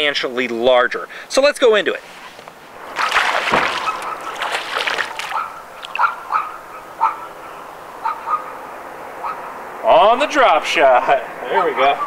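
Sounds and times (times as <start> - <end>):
water splashing and sloshing: 2.0 - 6.7.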